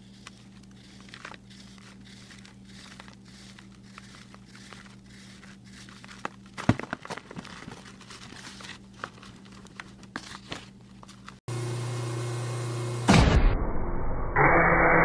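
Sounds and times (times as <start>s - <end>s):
knife cutting crumbly powder block: 0.0s - 6.5s
steady hum and hiss: 0.0s - 11.3s.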